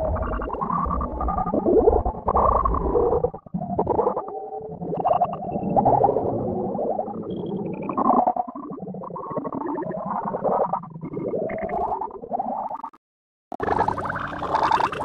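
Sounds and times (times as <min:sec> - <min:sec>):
warped layered cartoon soundtrack: 0:13.6 - 0:15.0.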